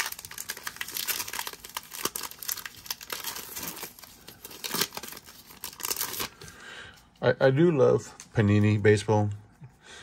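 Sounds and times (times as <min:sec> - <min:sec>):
card pack wrapper crinkling: 0:00.0 - 0:06.6.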